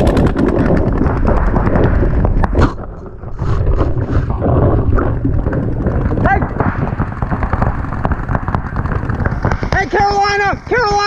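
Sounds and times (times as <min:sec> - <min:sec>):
low rumbling handling noise: 0:00.0 - 0:11.0
wind noise: 0:00.0 - 0:11.0
paintball marker firing pops: 0:06.6 - 0:09.9.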